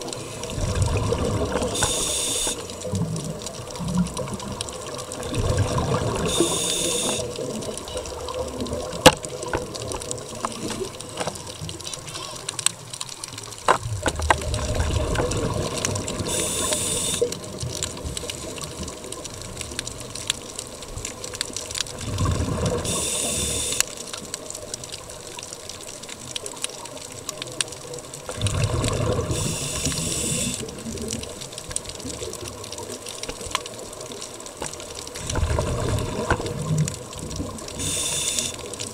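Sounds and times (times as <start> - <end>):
exhaled bubbles rushing: 0.0 - 11.8, 13.8 - 21.3, 21.9 - 23.7, 28.0 - 33.0, 35.0 - 38.9
underwater wash with clicks: 0.0 - 38.9
scuba regulator inhale hiss: 1.7 - 2.6, 6.3 - 7.3, 16.2 - 17.3, 22.8 - 23.8, 29.3 - 30.7, 37.8 - 38.6.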